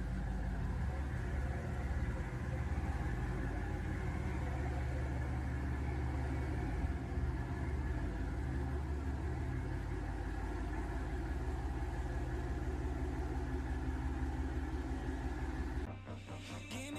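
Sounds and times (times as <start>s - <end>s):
propeller wash churning water: 0.0s - 15.9s
diesel engines low rumble: 0.0s - 16.9s.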